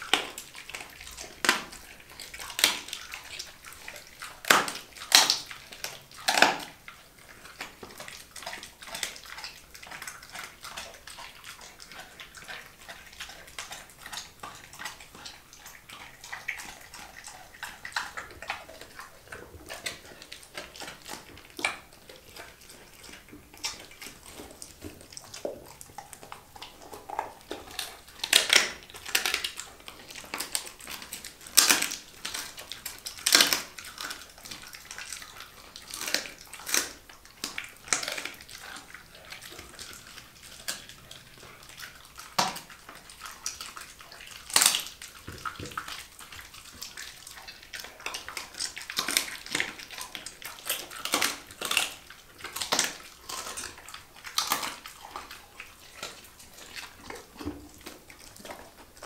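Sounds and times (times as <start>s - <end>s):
dog chewing food: 0.0s - 59.0s.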